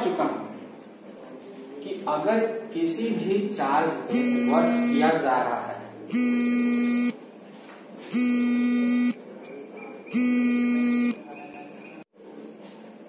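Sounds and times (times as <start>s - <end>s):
low electronic buzzer beeping: 4.1s - 5.1s, 6.1s - 7.2s, 8.1s - 9.2s, 10.2s - 11.2s.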